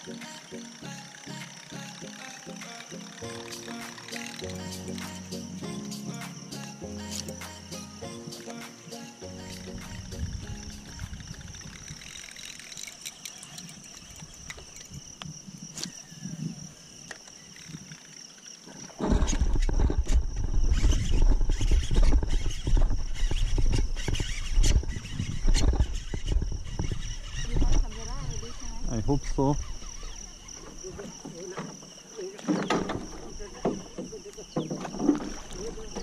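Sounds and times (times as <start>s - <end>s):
insects droning: 0.0s - 36.0s
insect clicks: 11.0s - 16.0s
microphone handling noise: 19.0s - 28.2s.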